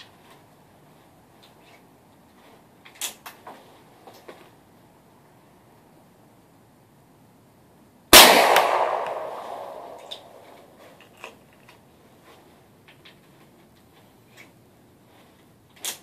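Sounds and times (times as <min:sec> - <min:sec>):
rifle shot with echo: 0:08.1 - 0:10.5
rifle handling clicks and knocks: 0:10.0 - 0:11.9, 0:12.8 - 0:14.6.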